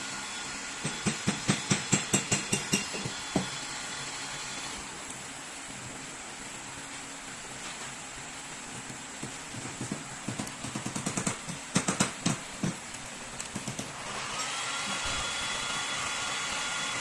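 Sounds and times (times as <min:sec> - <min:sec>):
heat gun blowing hiss: 0:00.0 - 0:05.7, 0:10.0 - 0:17.0.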